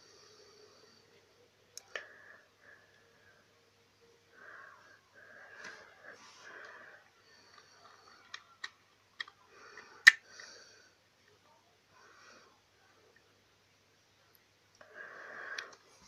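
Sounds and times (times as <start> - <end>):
sharp plastic clicks: 8.3 - 10.2.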